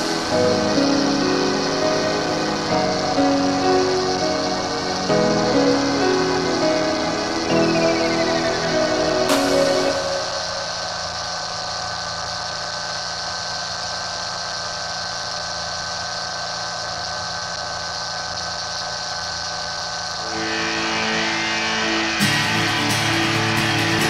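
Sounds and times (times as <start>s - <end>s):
background music: 0.0s - 10.9s, 20.3s - 24.0s
ultralight aircraft engine running: 0.0s - 13.2s.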